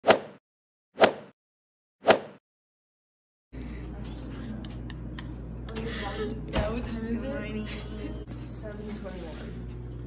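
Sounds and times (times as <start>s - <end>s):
low room hum: 3.6s - 10.0s.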